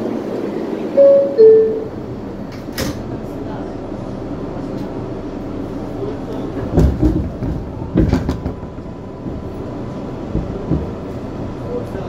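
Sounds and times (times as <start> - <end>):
subway car rumble: 0.0 - 12.0
heavy clunks and rattles: 6.6 - 9.4, 10.2 - 11.6.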